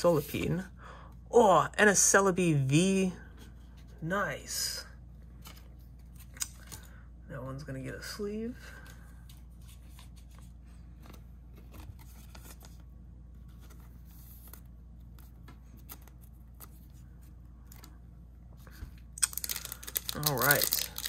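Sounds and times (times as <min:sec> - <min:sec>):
low steady hum: 0:00.0 - 0:21.0
plastic sleeve rustling and clicking: 0:19.2 - 0:21.0.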